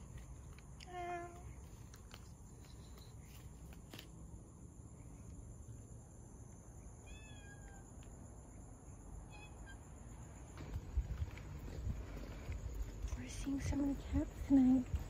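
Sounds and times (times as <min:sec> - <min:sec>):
cat meowing faintly: 0:07.0 - 0:08.0.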